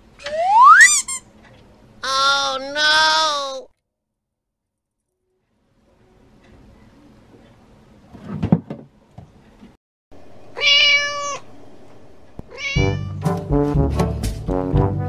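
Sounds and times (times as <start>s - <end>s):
cat meowing: 10.6s - 11.5s, 12.5s - 13.2s
brass music: 12.8s - 15.0s.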